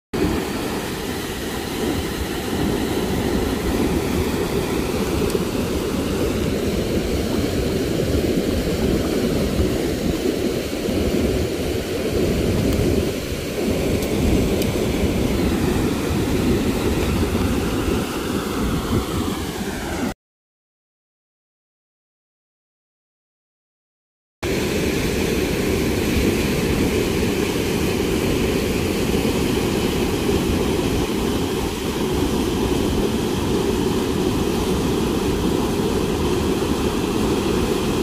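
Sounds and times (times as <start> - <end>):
fast-flowing river water rushing: 0.2 - 20.0.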